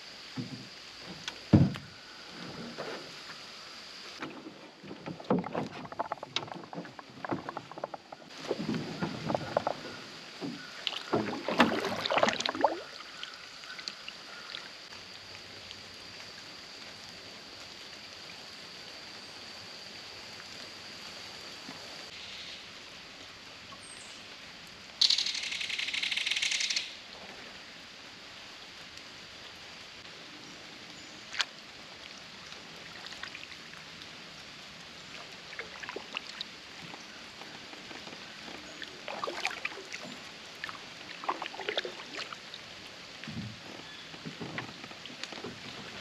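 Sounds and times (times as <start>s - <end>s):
quiet water ambience: 0.0s - 46.0s
paddle splashes and hull knocks: 0.3s - 3.2s, 4.2s - 14.0s, 35.1s - 46.0s.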